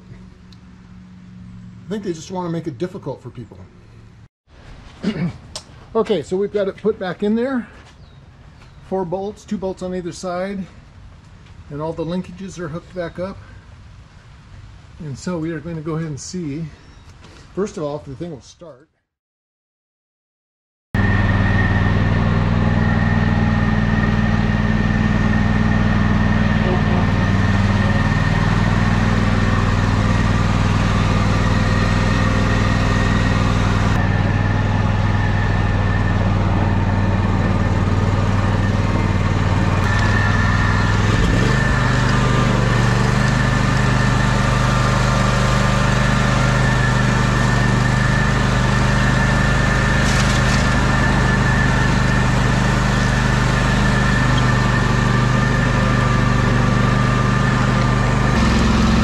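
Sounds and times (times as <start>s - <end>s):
high whine: 21.0s - 45.0s
mower engine running: 21.0s - 59.0s.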